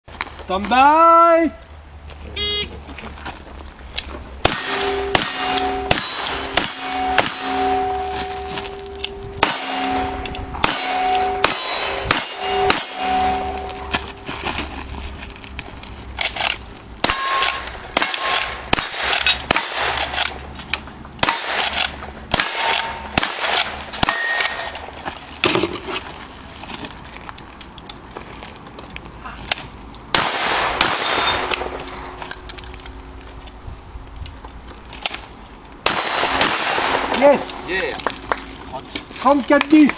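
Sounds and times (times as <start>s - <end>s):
steel targets ringing: 4.4s - 14.6s, 17.0s - 20.0s, 22.4s - 25.3s, 30.4s - 32.2s, 35.0s - 37.8s.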